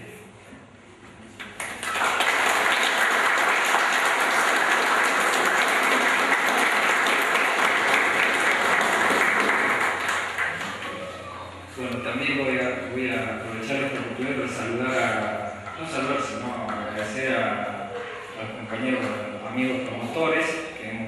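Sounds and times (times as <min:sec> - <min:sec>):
audience applauding: 0:01.6 - 0:11.2.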